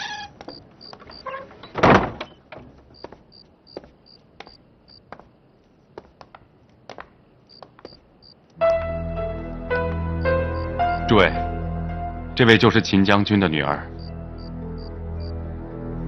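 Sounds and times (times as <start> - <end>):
insect chirping: 0.2 - 1.5, 2.9 - 5.6, 7.2 - 8.5, 10.2 - 11.1, 13.9 - 15.4
footsteps on hard floor: 2.9 - 5.3, 5.9 - 8.1.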